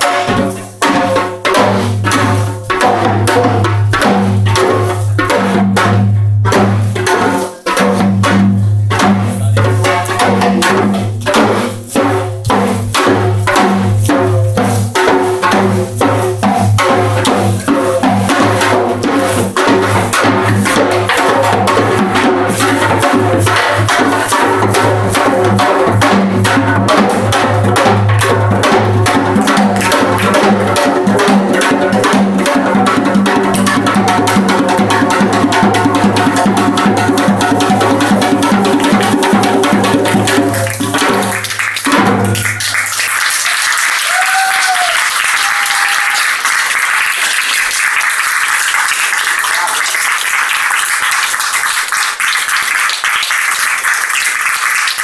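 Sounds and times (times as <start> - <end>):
hourglass drum solo: 0.0 - 47.5
audience applause: 40.4 - 55.0.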